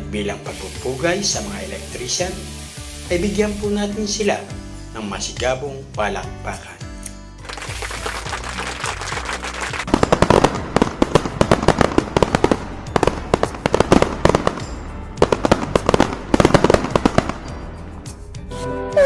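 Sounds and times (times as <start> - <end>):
background music: 0.0 - 19.0
fireworks crackling pops: 0.5 - 4.2, 7.4 - 17.7.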